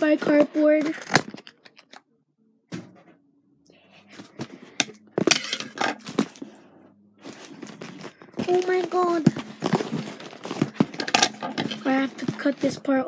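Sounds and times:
cardboard and paper rustling: 4.1 - 6.6, 7.2 - 13.0.

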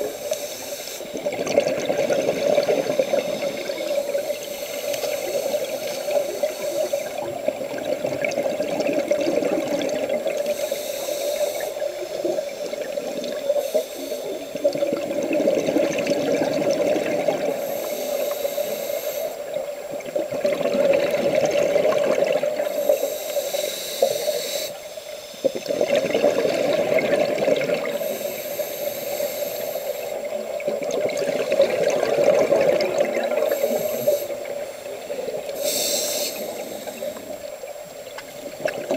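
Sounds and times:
hissing rush of exhaled bubbles: 0.0 - 38.9.

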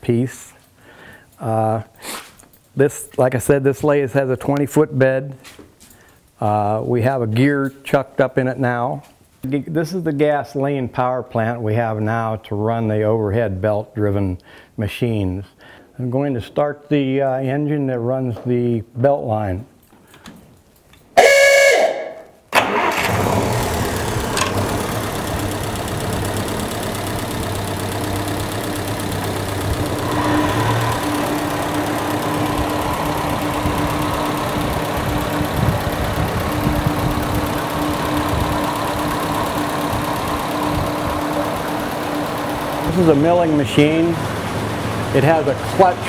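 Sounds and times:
gasoline engine running: 22.6 - 46.0.

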